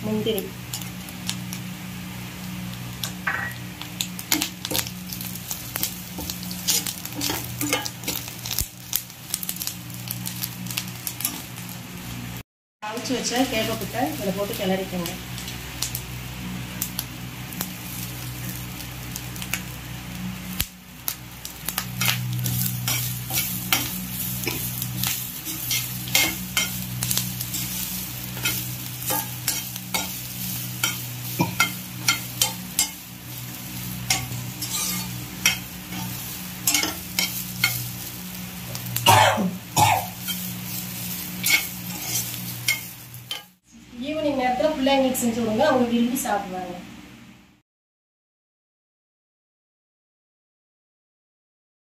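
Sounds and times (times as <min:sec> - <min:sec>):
light sizzle: 0:00.0 - 0:47.6
spatula scraping a pan: 0:06.2 - 0:08.3, 0:22.0 - 0:38.1, 0:40.0 - 0:43.5.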